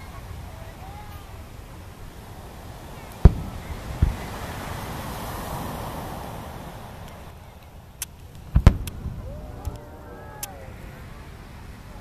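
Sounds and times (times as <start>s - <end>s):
firework crack: 0.0s - 12.0s
steady hiss: 0.0s - 12.0s
firework shells bursting: 2.2s - 10.8s.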